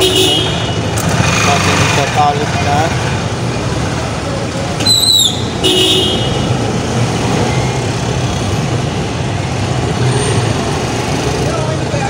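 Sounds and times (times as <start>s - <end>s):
passing vehicle engines: 0.0s - 12.0s.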